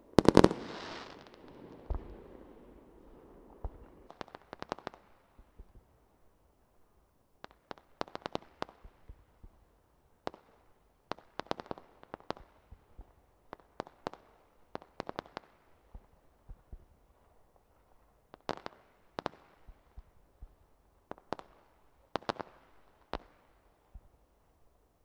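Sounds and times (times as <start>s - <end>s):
fireworks crackling and popping: 0.0s - 2.5s.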